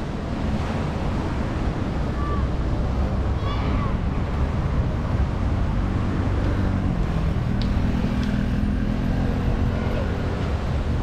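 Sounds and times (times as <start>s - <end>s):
engine hum: 0.0s - 11.0s
rumble of passing cars: 0.0s - 11.0s.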